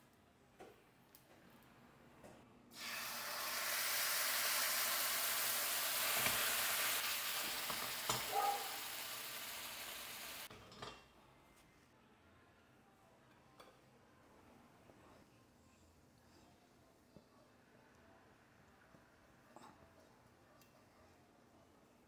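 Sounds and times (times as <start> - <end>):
food sizzling in oil: 2.7 - 10.5.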